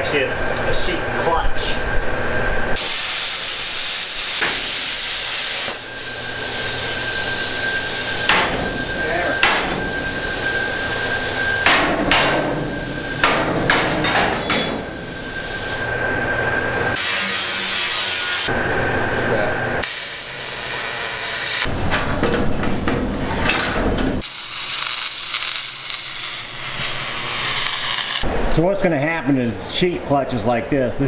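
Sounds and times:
plasma cutter hissing: 0:02.8 - 0:15.9, 0:19.8 - 0:21.7, 0:24.2 - 0:28.3.

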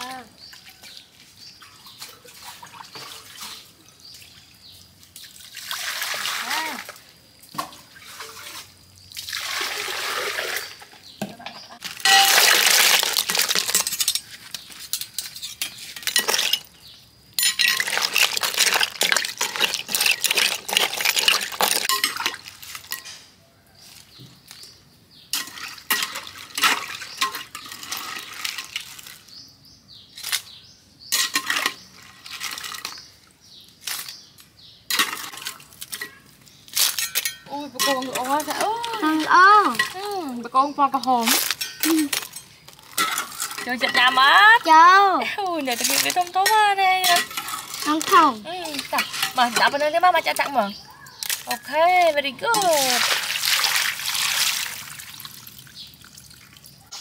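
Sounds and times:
water pouring and splashing: 0:00.0 - 0:23.2, 0:23.8 - 0:29.4, 0:31.1 - 0:34.2, 0:34.9 - 0:57.0
metal spoon clinking: 0:12.0 - 0:12.5, 0:17.4 - 0:18.3, 0:19.0 - 0:23.2, 0:36.9 - 0:38.4, 0:41.5 - 0:44.2.

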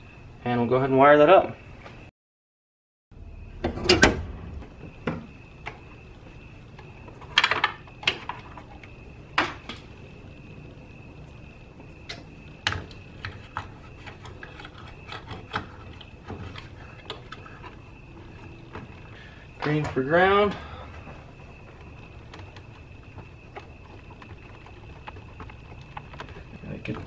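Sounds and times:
faint high whine: 0:03.2 - 0:27.0
hands handling wires and plastic: 0:12.1 - 0:27.0.

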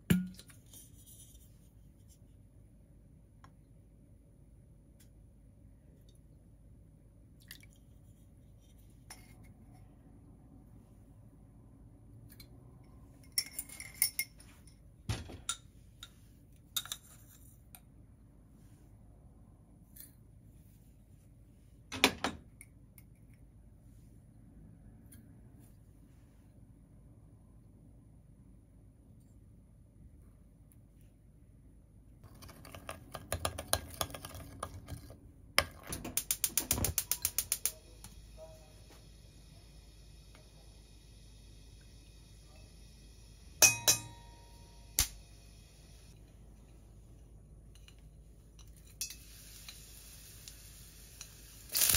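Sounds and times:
metal spoons clinking on glass bowl: 0:13.2 - 0:14.8, 0:43.6 - 0:44.6.

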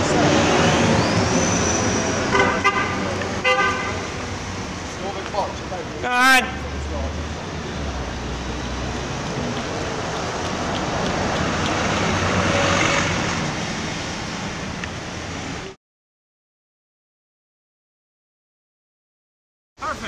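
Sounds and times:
street traffic rumble: 0:00.0 - 0:15.8.

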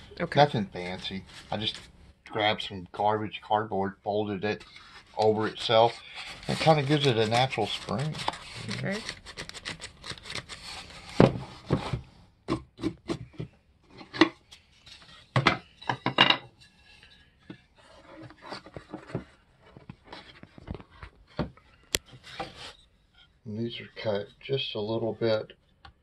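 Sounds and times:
wood rubbing: 0:04.6 - 0:11.9, 0:14.5 - 0:24.3.

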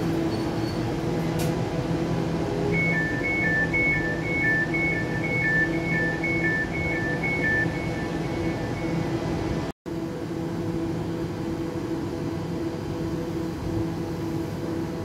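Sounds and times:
train electrical hum: 0:00.0 - 0:15.0
alternating door warning beeps: 0:02.6 - 0:09.6.

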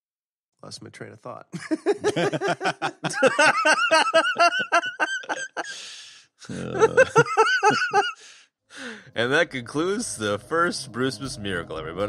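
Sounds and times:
person laughing heartily: 0:01.6 - 0:08.4
breathy gasp: 0:05.6 - 0:06.8, 0:08.1 - 0:09.1.

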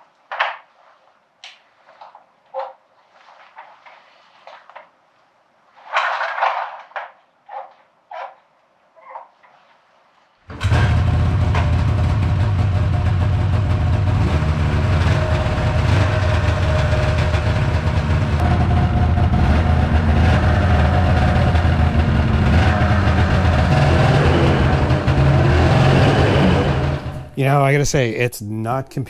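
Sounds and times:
snowmobile engine starting and running: 0:10.5 - 0:27.4.

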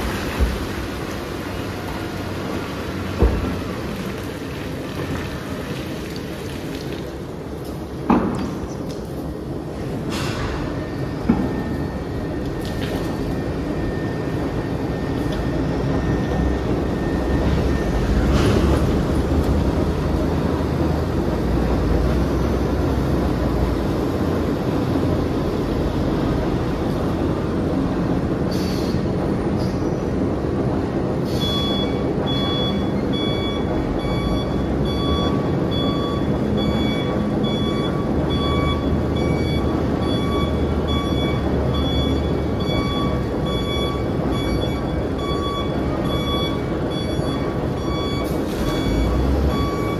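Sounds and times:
dump trucks working: 0:00.0 - 0:49.9
heavy rumble of crusher: 0:00.0 - 0:49.9
reversing alarm beeps: 0:10.8 - 0:18.8, 0:31.3 - 0:49.9.

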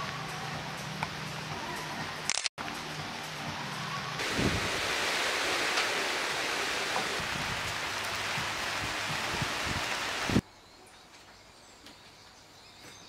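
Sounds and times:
steady rain falling: 0:02.6 - 0:10.4.

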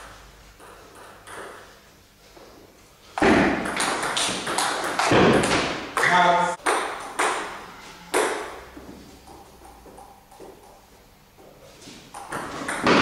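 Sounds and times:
table tennis ball pinging: 0:00.0 - 0:01.8, 0:03.2 - 0:10.9, 0:12.1 - 0:13.0.

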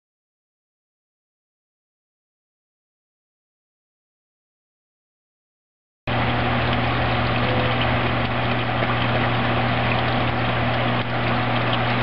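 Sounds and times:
water churning and splashing: 0:06.1 - 0:12.0
water pump electrical hum: 0:06.1 - 0:12.0.

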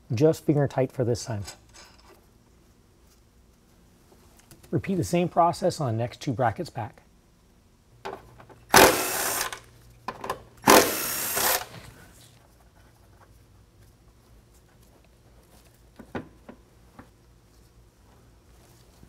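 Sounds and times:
cordless impact driver: 0:08.7 - 0:09.6, 0:10.6 - 0:11.8.

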